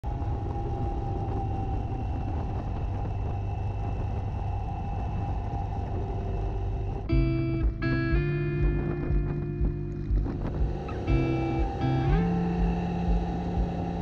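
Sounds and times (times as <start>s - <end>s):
road noise: 0.0s - 14.0s
wind noise: 0.0s - 14.0s
motorcycle engine running: 6.2s - 14.0s.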